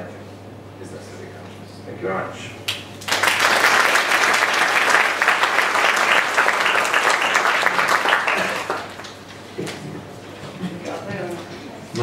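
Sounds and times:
audience applauding: 2.7s - 9.3s.

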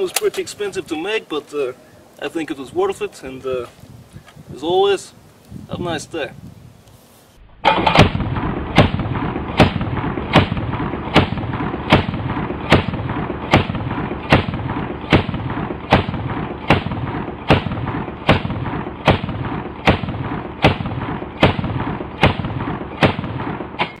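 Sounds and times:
shotgun shots: 7.6s - 24.0s.

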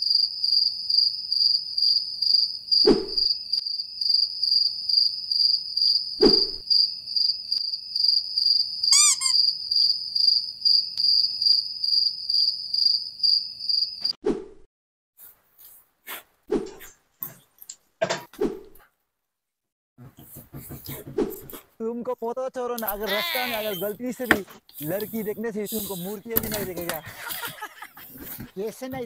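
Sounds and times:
cricket chirping: 0.0s - 14.2s, 22.9s - 28.3s.

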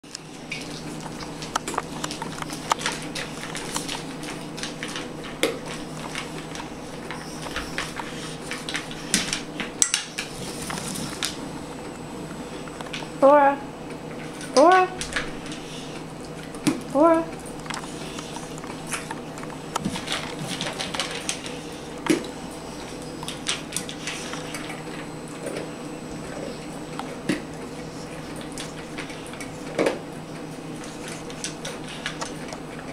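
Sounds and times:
dog crunching dry kibble: 0.0s - 13.2s, 14.0s - 32.9s.

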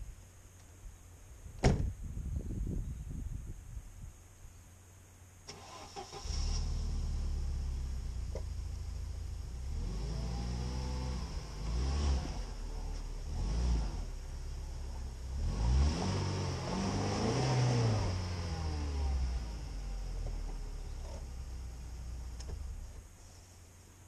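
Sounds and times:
car engine revving: 5.5s - 23.0s.

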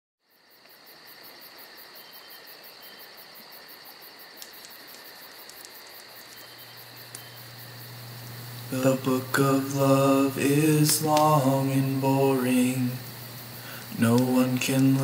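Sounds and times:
background hiss: 0.2s - 15.0s
high steady whine: 5.3s - 15.0s
low steady hum: 5.6s - 15.0s.

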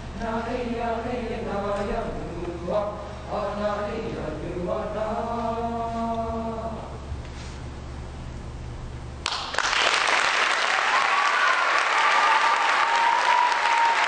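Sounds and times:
choir singing: 0.2s - 6.9s
audience applause: 9.3s - 14.0s
audience cheering: 9.9s - 14.0s.

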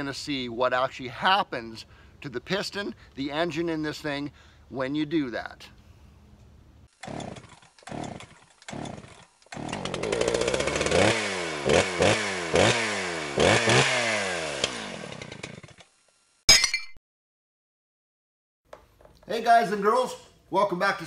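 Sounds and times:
small engine sputtering and revving: 6.9s - 16.0s.

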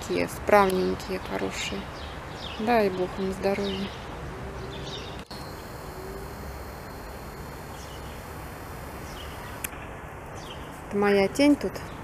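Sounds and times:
outdoor background hiss: 0.0s - 12.0s
faint bird chirps: 3.6s - 9.7s.

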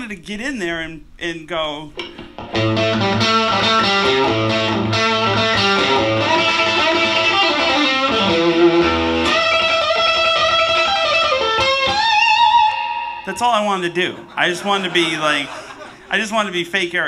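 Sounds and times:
electric guitar blues phrase: 0.0s - 16.2s.

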